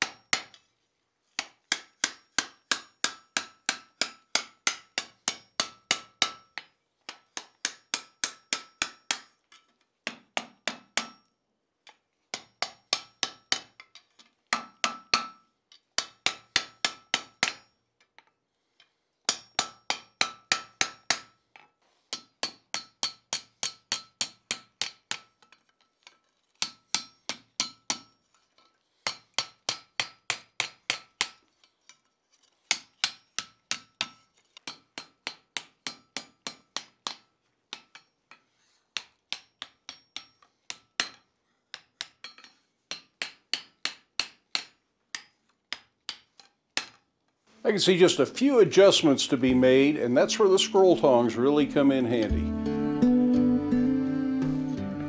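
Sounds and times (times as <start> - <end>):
hammer striking hot metal on anvil: 1.7 - 6.6, 10.7 - 11.3, 12.4 - 13.8, 19.3 - 21.4.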